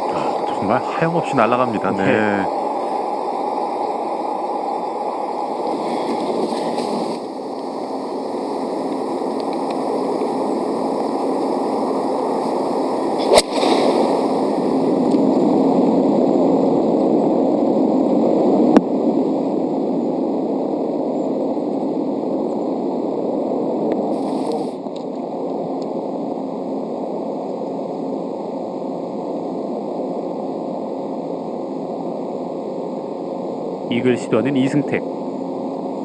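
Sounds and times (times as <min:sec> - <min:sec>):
outdoor background noise: 0:00.0 - 0:36.0
golf club striking ball: 0:13.2 - 0:14.1.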